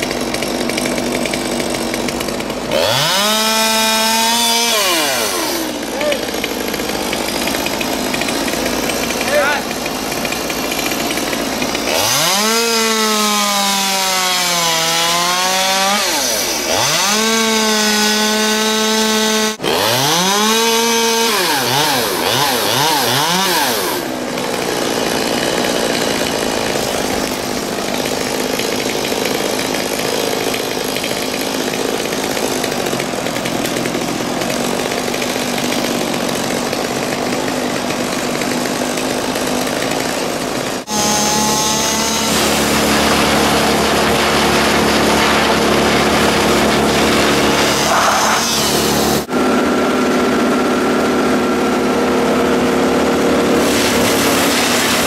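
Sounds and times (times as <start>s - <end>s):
chainsaw revving and cutting wood: 0.0s - 55.0s
wood chipper engine running: 0.0s - 55.0s.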